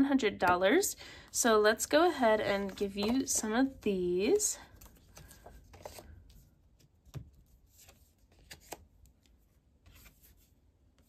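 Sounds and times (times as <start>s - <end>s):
paper cards tapping and rustling: 2.5s - 10.4s.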